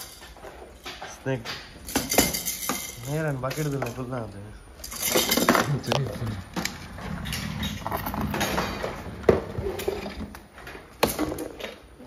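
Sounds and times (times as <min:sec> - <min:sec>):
plastic toys clattering in a box: 0:01.8 - 0:04.2, 0:04.8 - 0:11.9.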